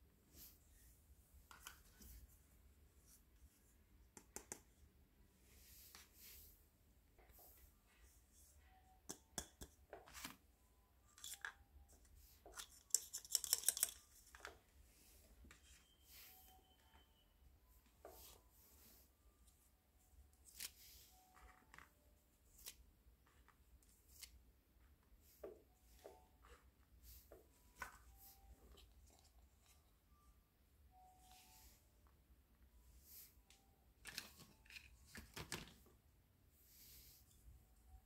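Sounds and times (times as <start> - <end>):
plastic toy pieces clicking: 12.8 - 14.1.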